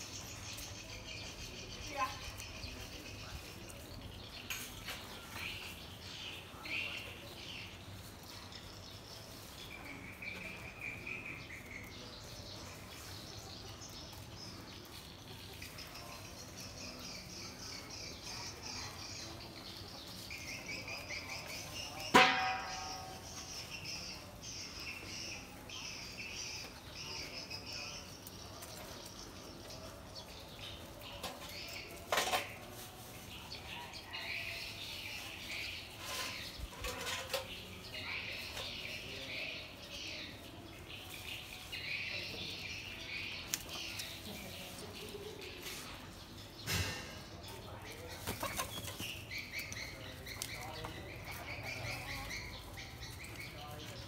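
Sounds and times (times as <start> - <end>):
small birds chirping: 0.0 - 54.0
metal basin clanking on concrete: 22.0 - 23.4, 31.2 - 32.7, 35.9 - 38.0.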